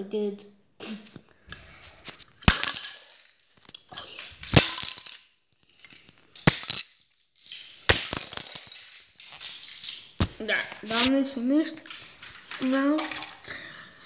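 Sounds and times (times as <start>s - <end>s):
small loose pieces rattling: 2.4s - 13.5s
plastic bricks knocking on floor: 6.0s - 11.1s, 11.7s - 13.5s.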